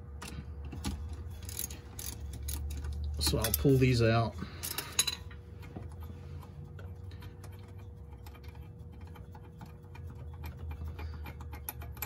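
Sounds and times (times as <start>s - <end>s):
ratchet clicking: 0.8s - 3.8s, 6.7s - 12.0s.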